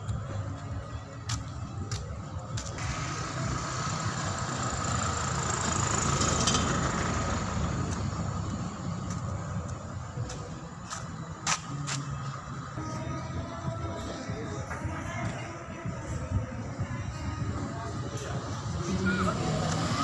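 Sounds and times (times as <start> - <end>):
low traffic rumble: 0.0 - 20.0
vehicle driving past: 2.8 - 9.7.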